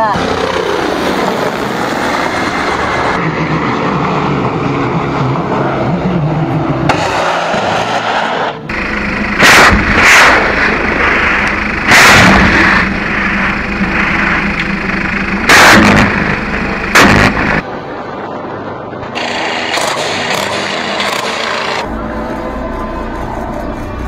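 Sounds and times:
helicopter engines and rotors: 0.0s - 24.0s
rocket blasts: 9.4s - 13.4s, 15.4s - 17.6s.

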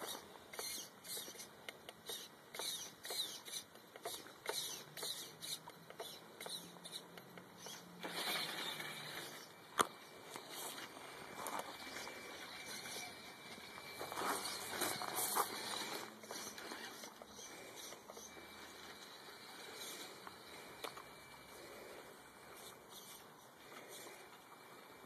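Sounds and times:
small electric motor whining: 0.0s - 25.0s
tyres crunching on gravel: 8.0s - 17.1s.

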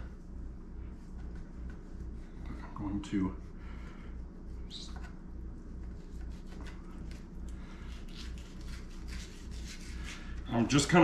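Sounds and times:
steady low hum: 0.0s - 11.0s
knife scraping fish skin: 7.9s - 10.3s.

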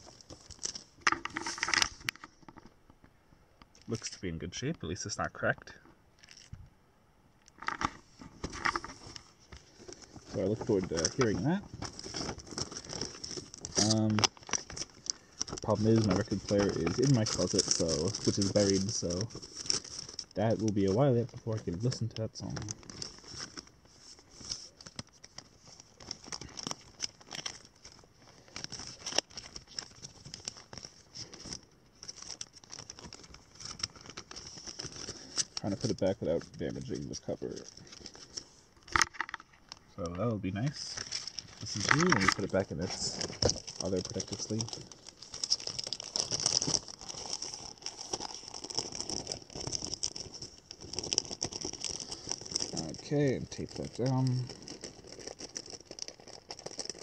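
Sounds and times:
paper sleeve rustling: 0.0s - 2.5s, 7.6s - 57.0s.

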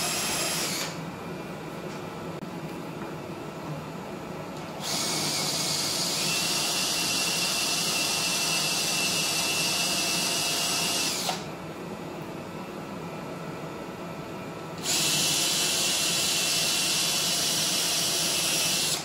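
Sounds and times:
power tool running against steel: 0.0s - 1.0s, 4.8s - 11.5s, 14.8s - 19.0s.

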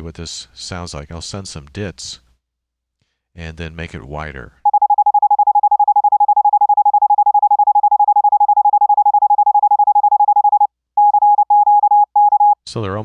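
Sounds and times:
morse code tone: 4.7s - 12.6s.

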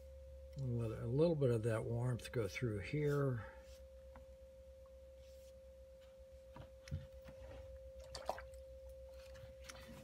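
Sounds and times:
electrical hum: 0.0s - 10.0s
brush and paper rustling: 2.8s - 4.2s, 5.2s - 7.8s.

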